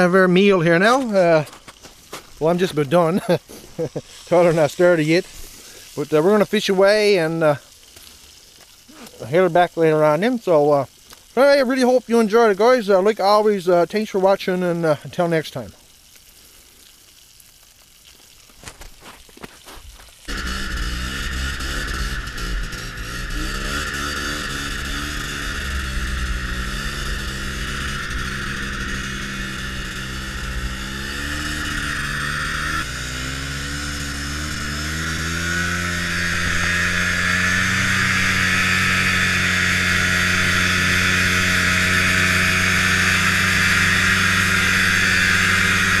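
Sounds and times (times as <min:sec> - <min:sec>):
steady hiss: 0:00.0 - 0:46.0
snowmobile engine running: 0:20.3 - 0:46.0.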